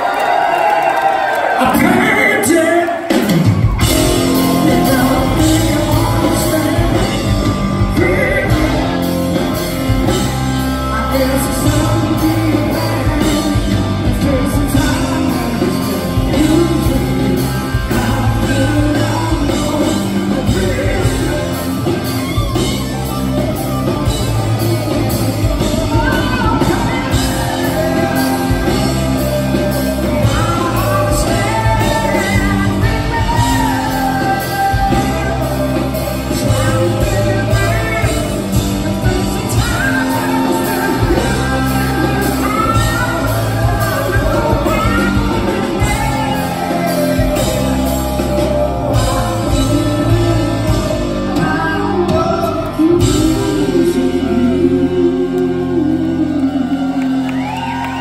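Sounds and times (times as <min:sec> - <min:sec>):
live rock band playing: 0:00.0 - 0:58.0
man singing lead: 0:01.4 - 0:58.0.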